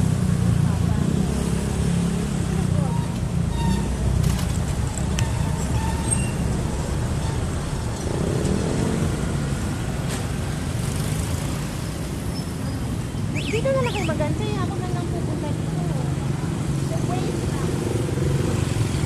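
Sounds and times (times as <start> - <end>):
road noise: 0.0 - 19.0.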